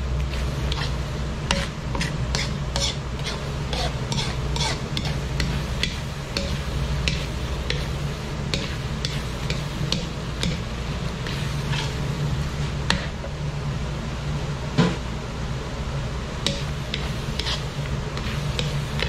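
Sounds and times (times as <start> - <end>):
light sizzling: 0.0 - 13.3, 16.4 - 19.0
metal ladle scraping a wok: 0.3 - 7.9, 11.2 - 12.2, 16.5 - 19.0.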